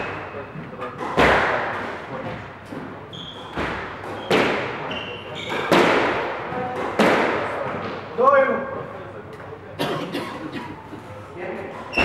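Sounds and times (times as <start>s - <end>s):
squash ball hitting rackets and walls: 0.0s - 8.1s
shoes squeaking on wooden floor: 3.0s - 5.7s, 11.8s - 12.0s.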